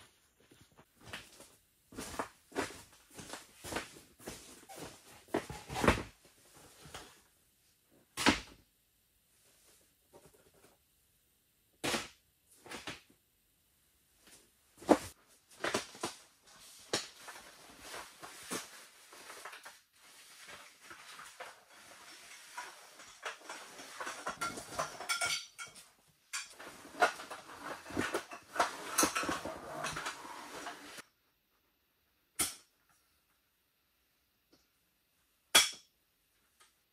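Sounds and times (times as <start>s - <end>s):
rustling: 14.2s - 25.1s.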